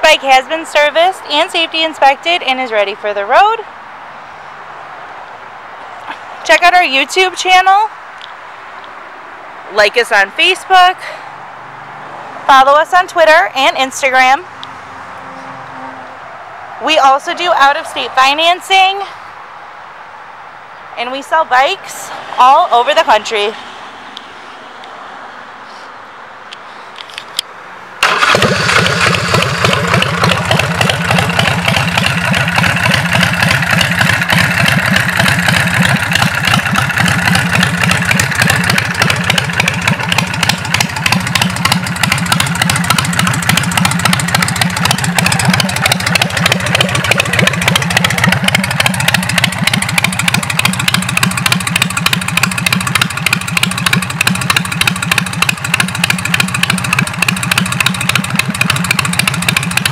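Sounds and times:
motorcycle engine idling: 28.0 - 59.9.

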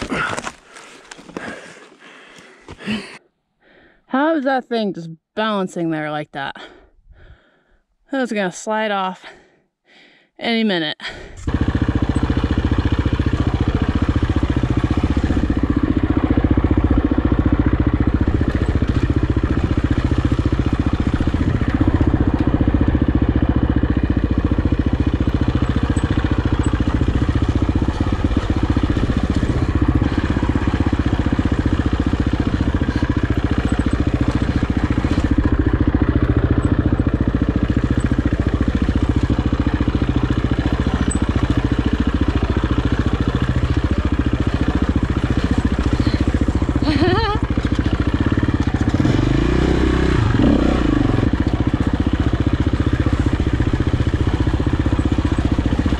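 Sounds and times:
dirt bike engine at low revs: 11.1 - 55.9.

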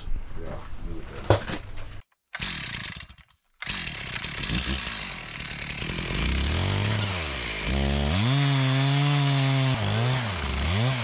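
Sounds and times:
chainsaw engine running: 2.4 - 11.0.

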